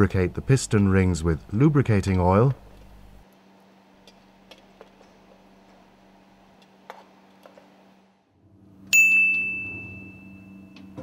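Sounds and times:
faint steady hum: 0.0s - 11.0s
bell-like ding ringing: 8.9s - 11.0s.

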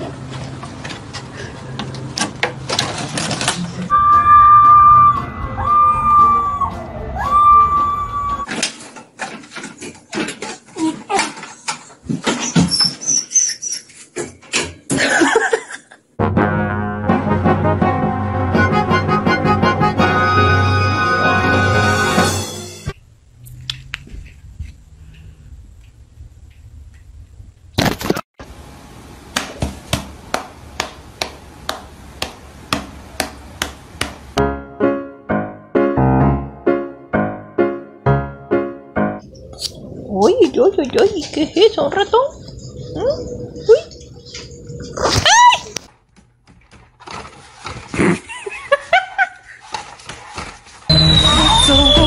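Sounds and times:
sharp slaps: 29.3s - 34.2s.

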